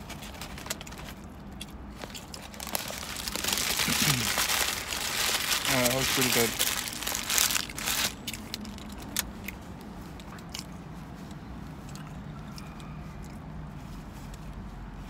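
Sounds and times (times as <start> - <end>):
low hum inside a car: 0.1 - 15.0
paper napkin crumpling: 2.0 - 8.3.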